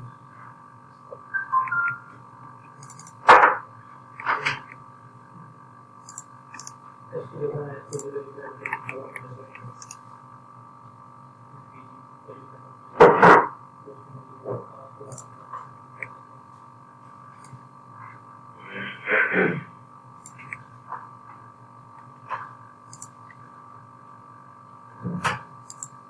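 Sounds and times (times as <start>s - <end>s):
steady electrical hum: 0.0s - 26.0s
human vocal noises: 18.6s - 19.8s.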